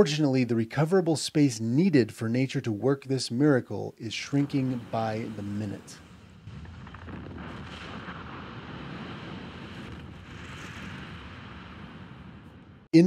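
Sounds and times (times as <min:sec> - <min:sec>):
rushing hiss of dust cloud: 0:04.2 - 0:12.1
rumble of breaking rock: 0:04.6 - 0:12.9.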